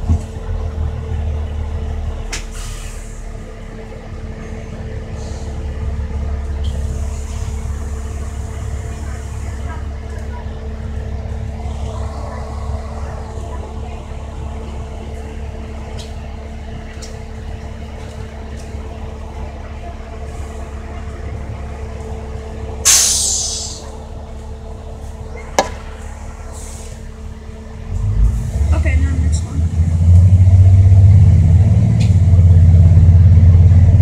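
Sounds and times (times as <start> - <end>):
bus engine and road drone: 0.0 - 34.0
air brakes hissing: 2.4 - 3.4, 5.1 - 5.7, 22.8 - 24.0, 26.5 - 27.1.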